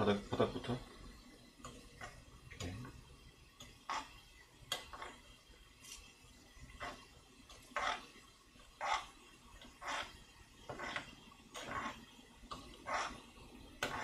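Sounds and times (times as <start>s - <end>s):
spoon scraping earthenware pot: 12.8s - 13.2s.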